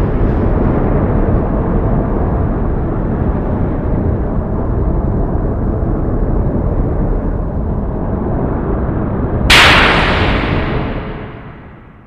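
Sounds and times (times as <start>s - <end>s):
thunder rumbling: 9.5s - 12.0s.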